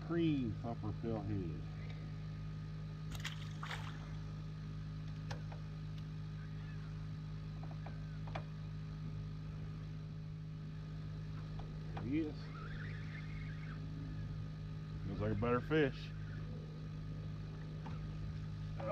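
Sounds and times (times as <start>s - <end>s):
boat motor hum: 0.0s - 18.9s.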